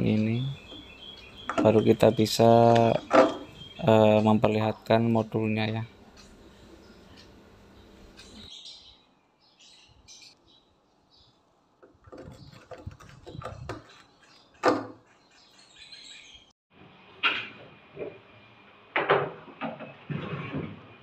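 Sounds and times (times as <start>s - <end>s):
birds chirping: 0.0s - 16.5s
screwdriver scraping and clicking: 11.8s - 14.4s.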